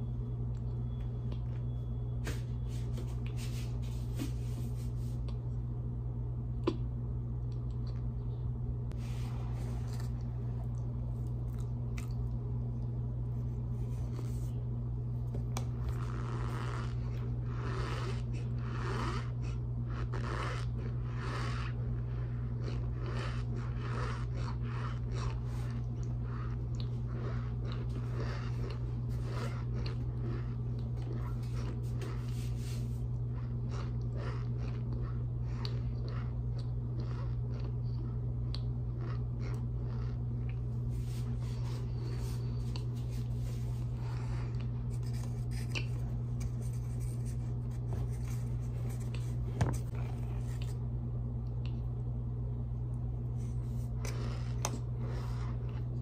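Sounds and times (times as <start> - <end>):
low hum: 0.0 - 56.0
chewing crunches close up: 15.7 - 32.3, 33.1 - 40.8.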